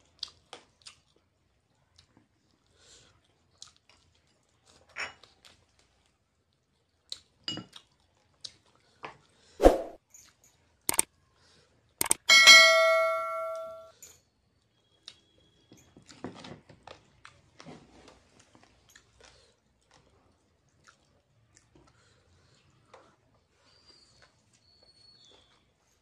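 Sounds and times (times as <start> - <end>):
eating noodles and chewing: 0.0 - 9.6, 14.6 - 26.0
bright notification chime: 12.3 - 13.9.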